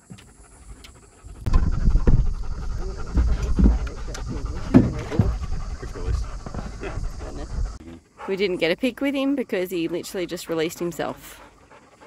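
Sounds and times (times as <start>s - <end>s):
dog panting heavily: 0.0s - 8.9s, 9.7s - 12.0s.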